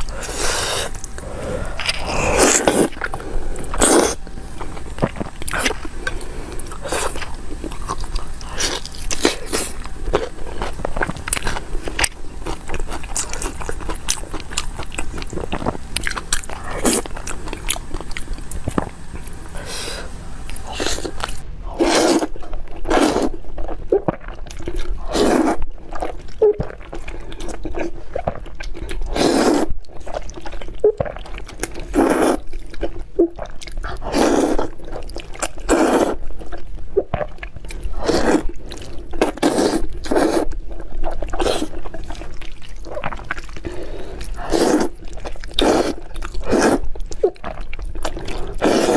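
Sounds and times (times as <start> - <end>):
slurping noodles: 0.0 - 11.9, 18.7 - 28.4, 29.0 - 30.2, 30.9 - 32.5, 33.8 - 36.3, 37.2 - 48.9
chewing pork belly: 0.0 - 48.9.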